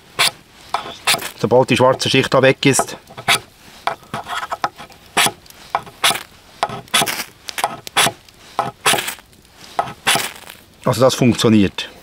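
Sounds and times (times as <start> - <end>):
knife scraping fire-steel rod: 0.0 - 10.6.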